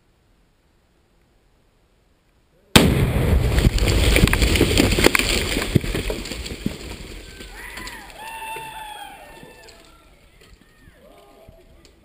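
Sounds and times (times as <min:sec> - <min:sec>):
explosive blast: 0:02.8 - 0:05.9
debris crackling down: 0:02.8 - 0:12.0.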